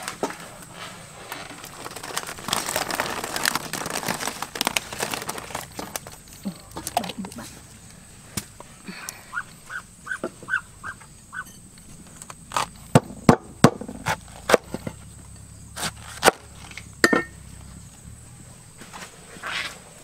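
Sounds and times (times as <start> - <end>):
short quick animal calls: 9.3 - 11.5.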